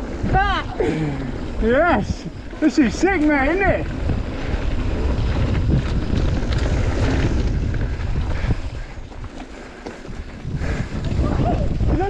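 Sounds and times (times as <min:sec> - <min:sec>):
bike tyres rumbling: 0:00.0 - 0:12.0
wind buffeting microphone: 0:00.0 - 0:12.0
bike knocking over rough ground: 0:02.8 - 0:12.0.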